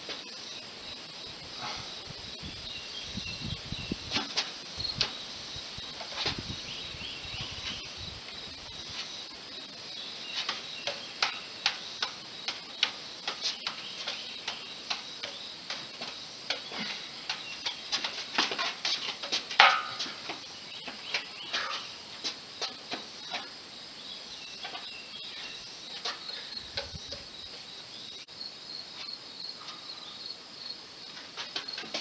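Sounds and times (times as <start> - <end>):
juggling props clicking: 10.3 - 23.5.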